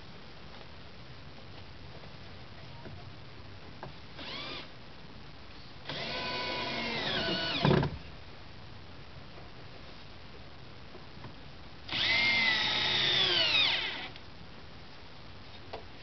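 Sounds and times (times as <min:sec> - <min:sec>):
cordless drill driving screw: 0:04.2 - 0:04.7, 0:05.9 - 0:07.7, 0:11.9 - 0:14.2.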